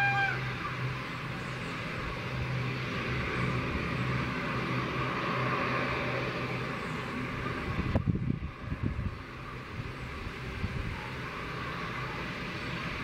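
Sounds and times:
turboprop engines droning: 0.0 - 13.0.

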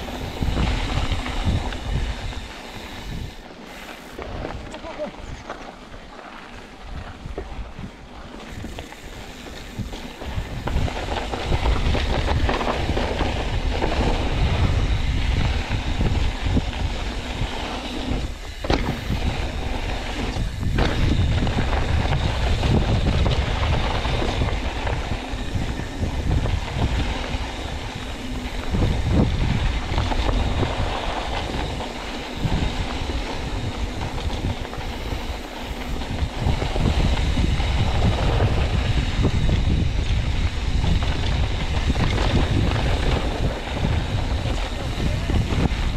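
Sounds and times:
bike tyres rumbling on dirt trail: 0.0 - 45.9
wind buffeting microphone: 0.0 - 45.9
bike knocking over bumps: 18.4 - 27.2.

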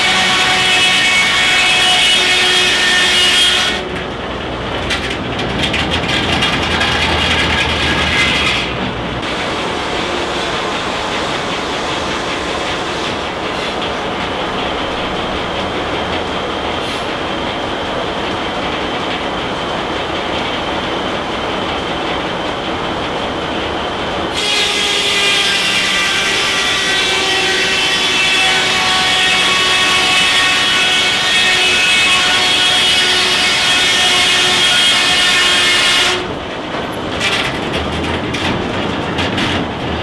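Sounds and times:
saw blade cutting log: 6.8 - 9.7.

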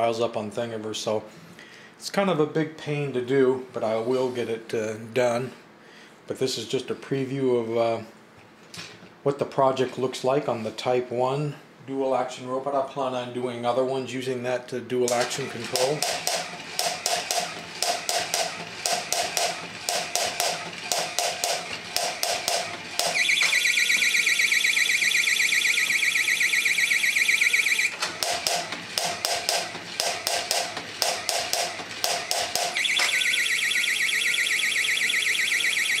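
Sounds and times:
warbling electronic alarm tone: 23.0 - 28.0, 32.8 - 36.0.

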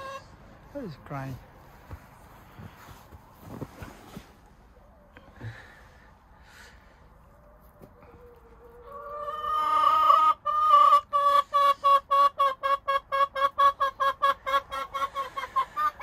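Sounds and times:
chicken cackling and clucking: 0.0 - 0.7, 6.3 - 16.0.

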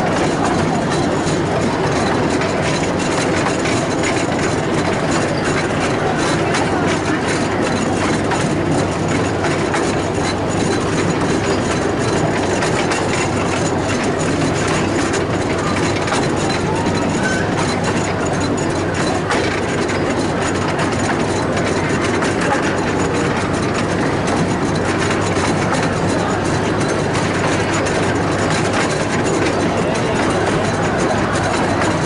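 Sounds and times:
train engine drone: 0.0 - 32.0
wheels clicking on rails: 0.0 - 32.0.

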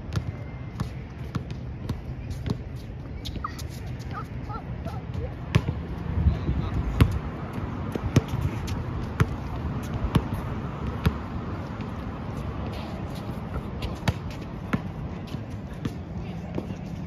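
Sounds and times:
basketball bouncing on hard court: 5.5 - 5.8, 9.1 - 11.2.

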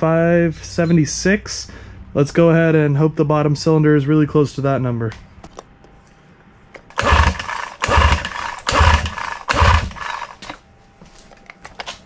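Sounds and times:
outboard motor pull-start cranking: 6.9 - 10.5.

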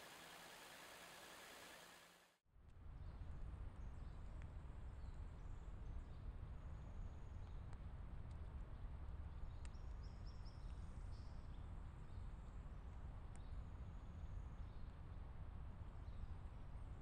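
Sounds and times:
low rumble and hiss: 2.8 - 17.0.

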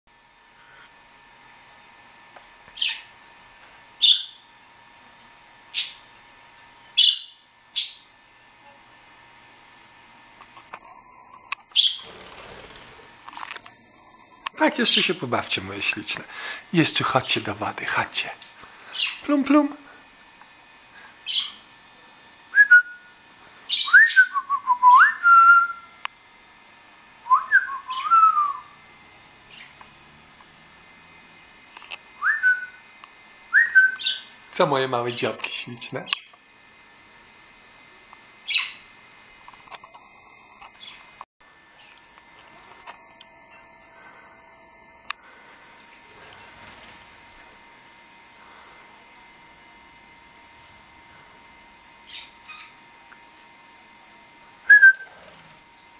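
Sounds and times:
budgerigars chirping: 2.8 - 3.1, 4.0 - 4.4, 7.0 - 8.0, 11.8 - 12.0, 38.5 - 38.8
person whistling: 54.7 - 55.1.

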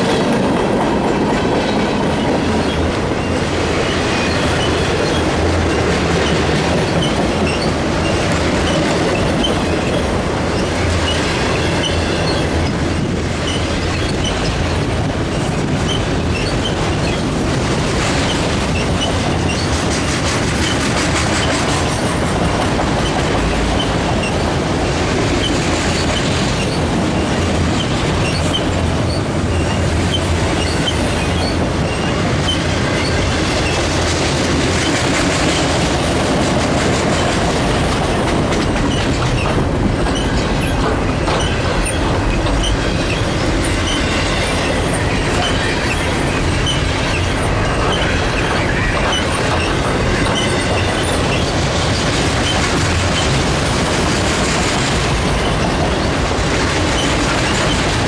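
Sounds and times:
train wheels rumbling on rail: 0.0 - 58.0
wheel squeals: 6.2 - 12.8, 13.4 - 17.4, 18.2 - 19.7, 25.4 - 33.8, 38.9 - 53.4
wheels clicking over track: 30.0 - 58.0.

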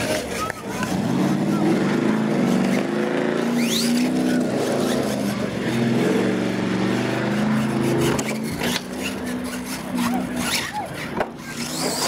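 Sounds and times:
faint spectators' voices: 0.0 - 12.0
toy truck motor whining: 3.4 - 6.2, 6.9 - 12.0.

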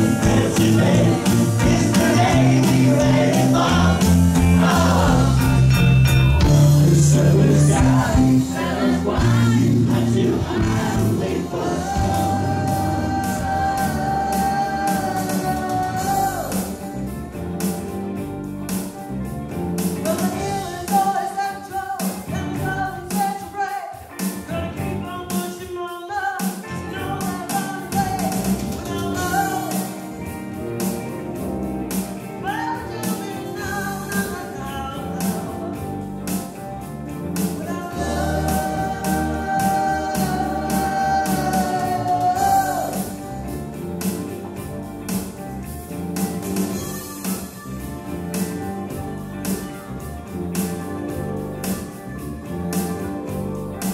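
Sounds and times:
live rock band playing: 0.0 - 53.9
woman singing: 37.6 - 43.0.

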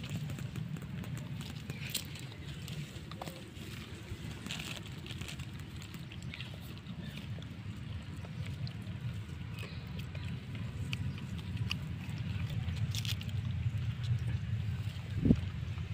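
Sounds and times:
clicks and rustles in dry grass: 0.0 - 15.9
wind rumble on microphone: 10.6 - 15.9.

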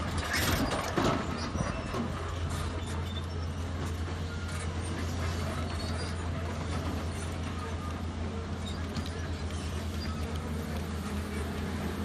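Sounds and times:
excavator diesel engine droning: 0.0 - 12.0.

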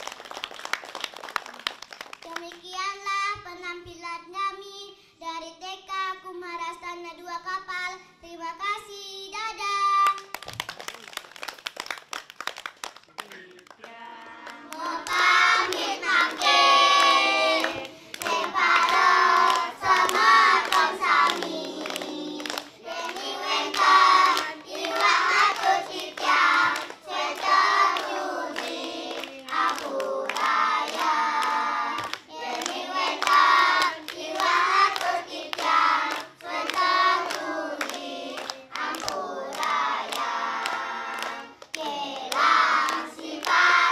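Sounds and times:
quick handclaps: 0.0 - 2.6, 10.0 - 43.7
children singing: 14.7 - 43.9.

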